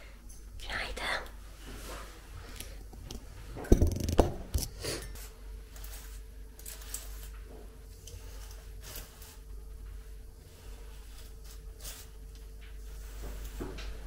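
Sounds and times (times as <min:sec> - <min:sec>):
faint steady hum: 0:00.0 - 0:14.0
sharp knocks and clatters: 0:03.6 - 0:04.6.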